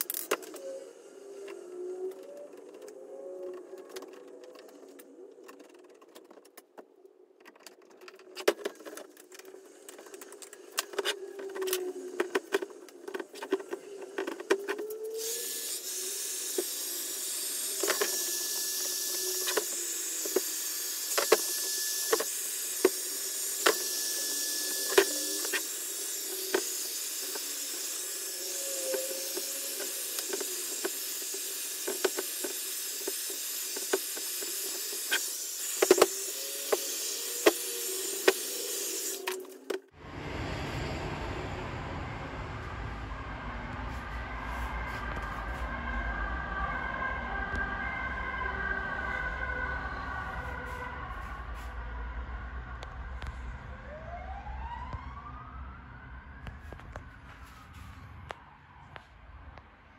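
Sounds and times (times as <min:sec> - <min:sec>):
heat gun hissing: 0:15.2 - 0:39.5.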